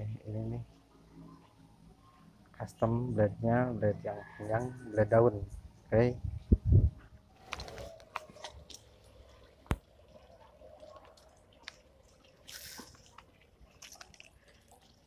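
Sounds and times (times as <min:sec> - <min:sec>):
water dripping: 0:08.0 - 0:15.0.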